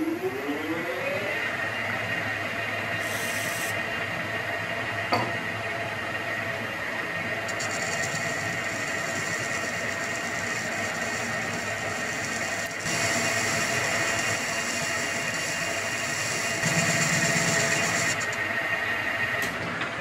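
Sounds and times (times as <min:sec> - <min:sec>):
lathe spindle whine: 0:00.0 - 0:19.8
lathe tool scraping cut: 0:07.5 - 0:18.4.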